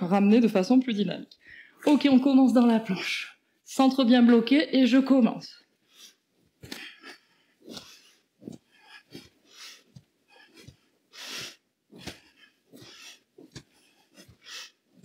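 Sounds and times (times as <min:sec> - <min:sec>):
woman breathing hard: 0:05.8 - 0:15.0
feet thudding on mat: 0:07.7 - 0:15.0.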